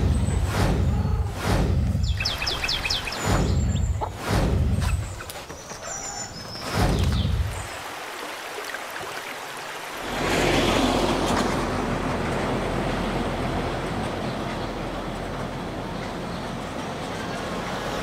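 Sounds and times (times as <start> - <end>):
bird chirps: 2.0 - 4.2, 4.8 - 7.7
road noise: 7.8 - 18.0.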